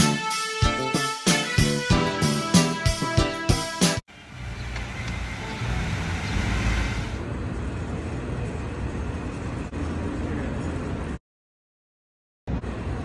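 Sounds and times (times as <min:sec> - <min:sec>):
traffic rumble: 0:04.1 - 0:11.2, 0:12.5 - 0:13.0.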